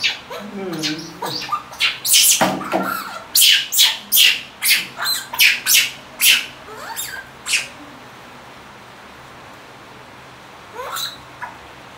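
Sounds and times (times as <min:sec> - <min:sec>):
baby monkey screeching: 0:00.0 - 0:07.8, 0:10.8 - 0:11.6.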